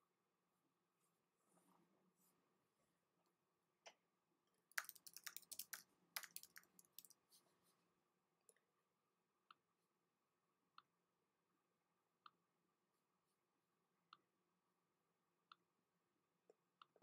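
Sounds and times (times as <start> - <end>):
faint keyboard typing: 4.7 - 7.4.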